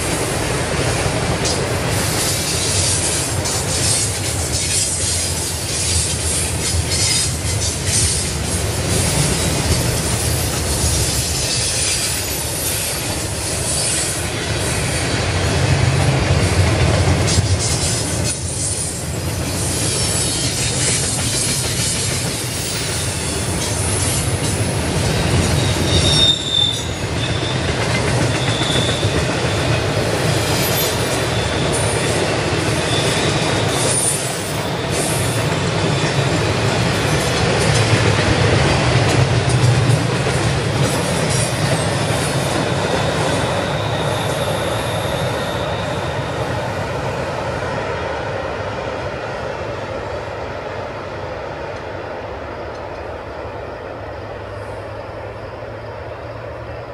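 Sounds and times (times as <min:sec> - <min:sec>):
freight train wheels rumbling: 0:00.0 - 0:56.9
high wheel squeal: 0:17.3 - 0:24.5, 0:25.2 - 0:36.2, 0:40.9 - 0:47.1.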